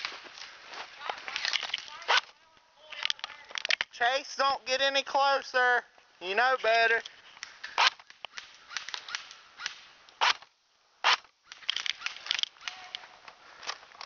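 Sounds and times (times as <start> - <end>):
light clicks and crackles: 0.0 - 4.0
airsoft gun shots: 7.8 - 12.9.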